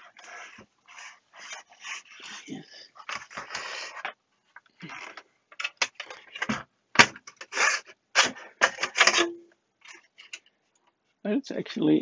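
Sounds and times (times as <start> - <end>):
clicks and knocks of handling: 3.0 - 7.5.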